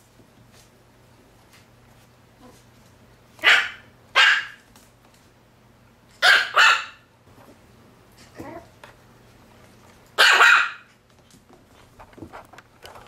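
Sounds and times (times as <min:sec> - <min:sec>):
puppy barking: 0:03.4 - 0:04.6, 0:06.2 - 0:07.1, 0:10.2 - 0:10.9.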